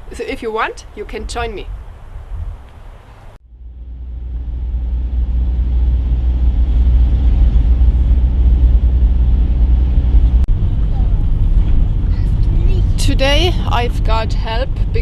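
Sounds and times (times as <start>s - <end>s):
car interior engine and road noise: 3.4s - 15.0s.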